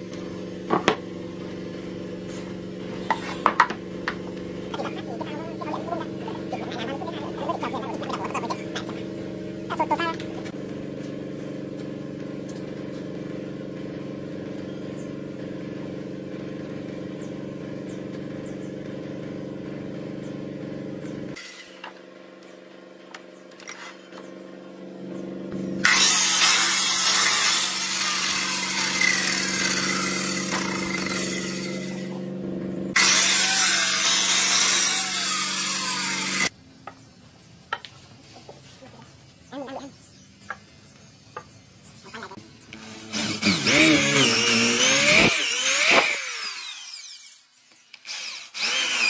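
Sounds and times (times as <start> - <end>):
chainsaw engine running: 0.0 - 36.5, 42.4 - 47.4, 48.0 - 49.0
chainsaw cutting into wood: 25.6 - 32.2, 32.9 - 36.5, 42.8 - 49.0.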